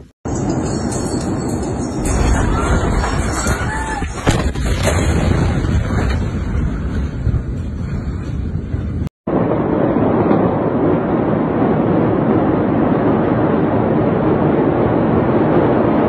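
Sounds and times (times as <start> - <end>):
dull rushing noise: 0.0 - 16.0
wind on phone microphone: 1.7 - 16.0.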